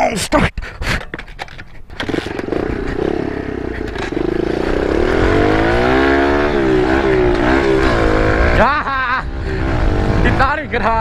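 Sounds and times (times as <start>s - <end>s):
small motorbike engine revving: 1.9s - 8.9s.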